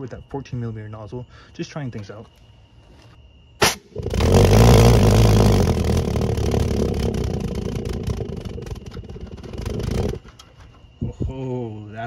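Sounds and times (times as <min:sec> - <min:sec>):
pulse jet loud low buzz: 0:03.6 - 0:10.4.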